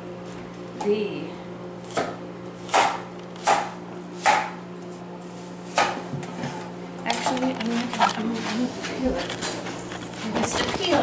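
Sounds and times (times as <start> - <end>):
knife chopping on plastic board: 1.9 - 4.6, 5.7 - 6.3.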